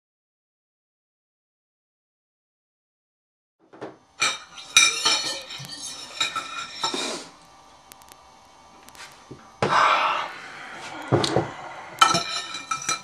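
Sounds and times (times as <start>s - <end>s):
hard objects clattering: 10.9s - 13.0s.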